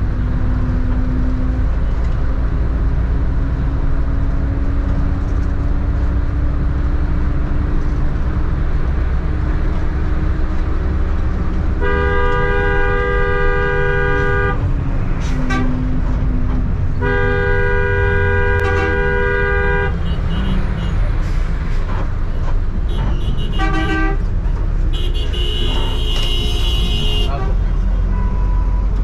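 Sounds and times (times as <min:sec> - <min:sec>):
bus engine rumble: 0:00.0 - 0:29.0
road noise: 0:00.0 - 0:29.0
vehicle horn blasts: 0:11.8 - 0:14.6, 0:17.0 - 0:21.0, 0:22.9 - 0:24.2, 0:24.9 - 0:28.8.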